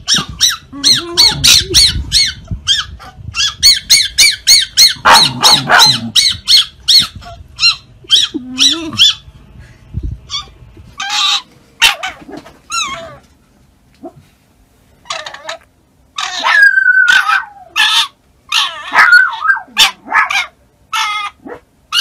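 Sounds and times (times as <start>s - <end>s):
fox whining: 0.0s - 9.3s, 10.3s - 13.3s, 16.2s - 22.0s
fox yipping and chirping: 0.0s - 9.3s, 16.2s - 22.0s.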